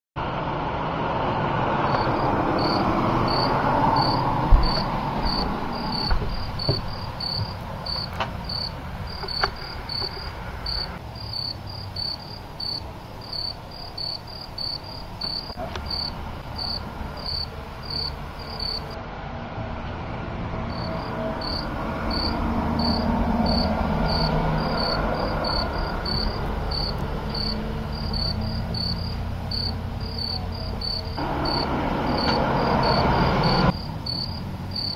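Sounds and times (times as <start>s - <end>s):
crickets chirping: 1.8s - 19.0s, 20.7s - 34.9s
knocks: 4.4s - 8.3s.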